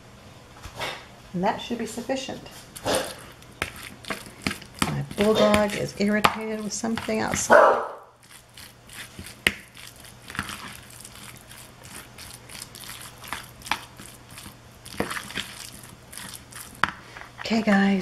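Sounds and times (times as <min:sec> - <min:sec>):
fork mashing egg salad: 0:02.6 - 0:07.6, 0:08.2 - 0:17.4.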